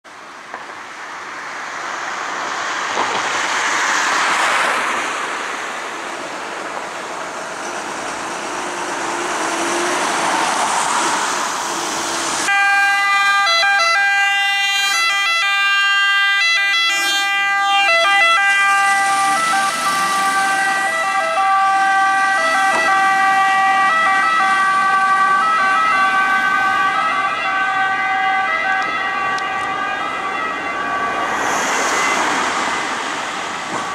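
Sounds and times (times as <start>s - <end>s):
rushing noise: 0.5s - 13.0s, 16.9s - 33.9s
fire engine two-tone siren: 12.4s - 33.1s.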